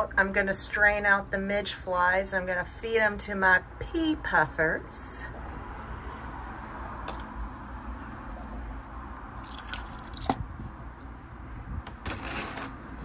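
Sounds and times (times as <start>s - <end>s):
baster slurping water: 9.4s - 11.1s.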